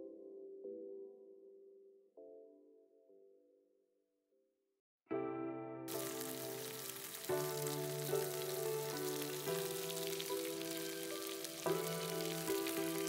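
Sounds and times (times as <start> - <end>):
background music with held chords: 5.1 - 13.0
meat sizzling in a pan: 5.9 - 13.0.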